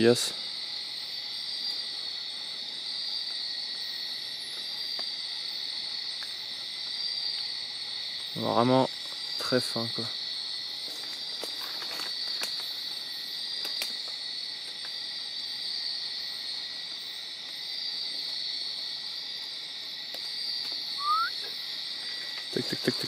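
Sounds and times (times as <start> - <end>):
insect chorus shrill: 0.0 - 23.0
short rising chirp: 21.0 - 21.4.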